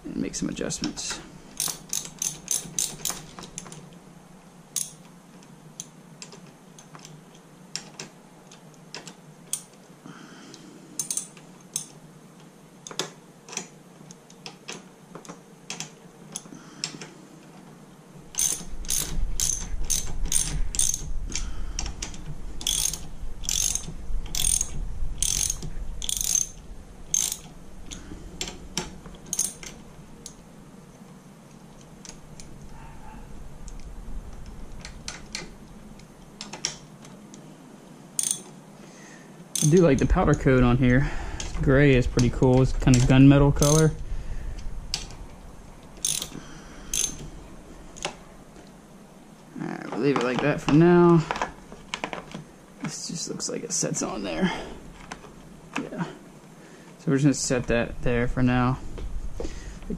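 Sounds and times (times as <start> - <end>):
socket ratchet clicking: 1.6 - 3.8, 4.8 - 5.1, 11.0 - 12.0, 18.3 - 30.4, 38.2 - 38.6, 39.5 - 40.1, 43.6 - 43.9, 46.0 - 47.2.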